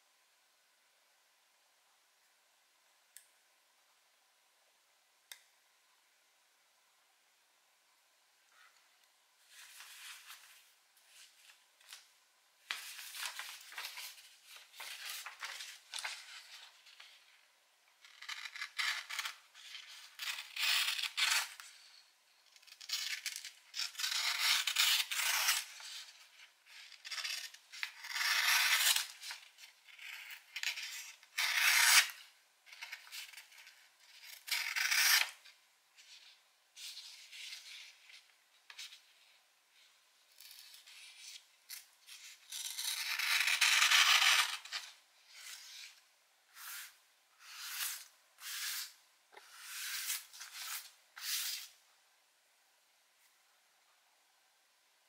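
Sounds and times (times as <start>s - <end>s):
knife slicing paper: 42.1s - 51.8s.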